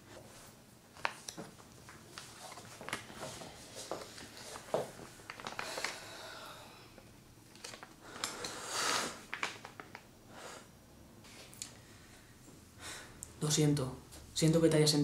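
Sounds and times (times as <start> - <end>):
breathy sigh: 5.6 - 7.0
small clicks and rustles: 7.5 - 8.6.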